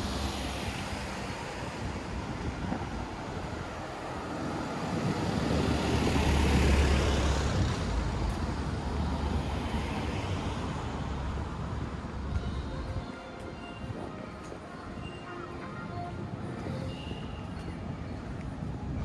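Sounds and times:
car passing by: 0:00.0 - 0:12.1.

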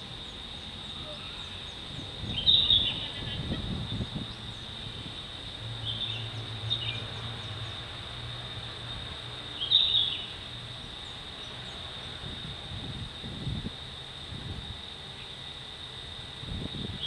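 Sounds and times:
bird chirps: 0:00.3 - 0:04.7, 0:09.6 - 0:10.3.

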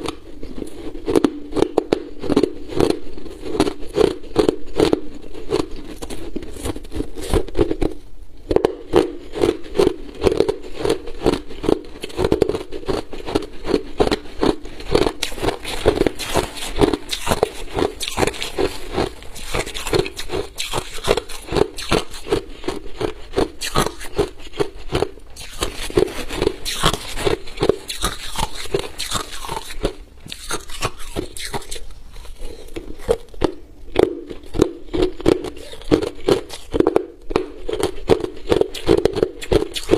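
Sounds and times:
ice crunched between teeth: 0:00.0 - 0:39.9.

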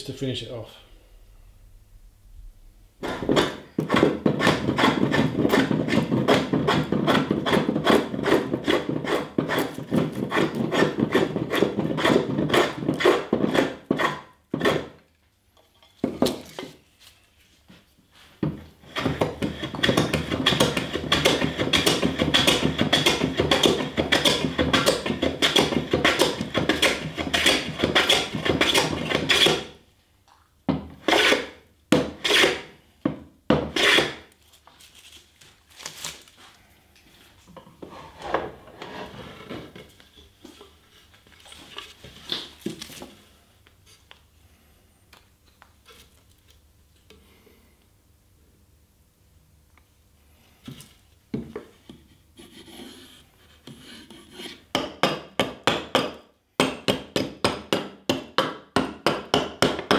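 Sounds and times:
hand plane scraping wood: 0:03.0 - 0:15.0, 0:18.8 - 0:29.8, 0:31.0 - 0:32.7, 0:33.7 - 0:34.2, 0:37.8 - 0:39.9, 0:51.9 - 0:54.7.

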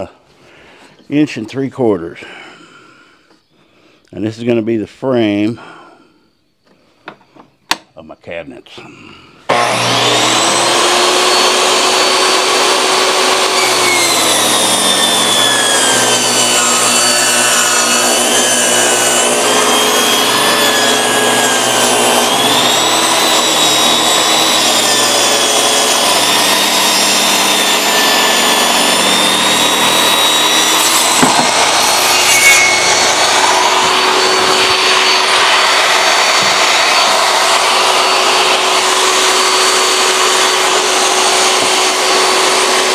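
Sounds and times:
saw cutting wood: 0:09.5 - 0:42.9
table saw motor whine: 0:09.5 - 0:42.9
board knocking: 0:31.2 - 0:31.6.

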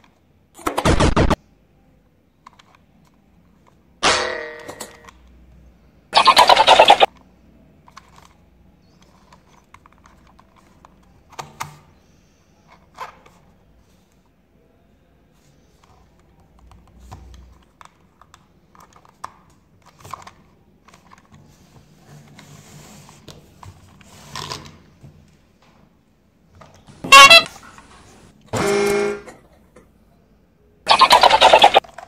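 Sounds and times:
loud rapid-pulsing electronic burst: 0:00.8 - 0:01.4, 0:06.2 - 0:07.1, 0:30.9 - 0:31.8
toy train horn toot: 0:27.0 - 0:27.6, 0:28.6 - 0:29.3.

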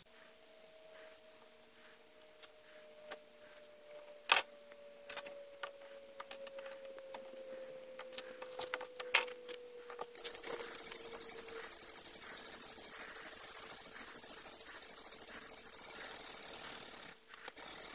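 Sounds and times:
faint falling steady tone: 0:00.0 - 0:17.9
rustling hiss: 0:07.4 - 0:17.9.

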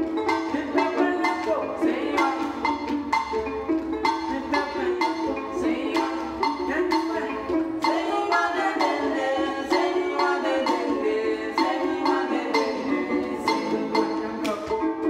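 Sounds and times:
plucked harp-lutes: 0:00.0 - 0:15.0
voices singing together: 0:00.0 - 0:15.0
gourd struck with palm: 0:11.6 - 0:15.0.

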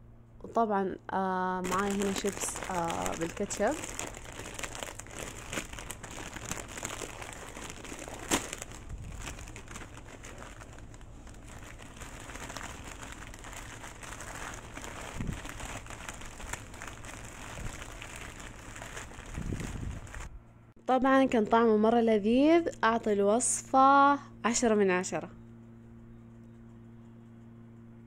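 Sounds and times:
potato chips crinkling and crunching: 0:01.6 - 0:20.3.

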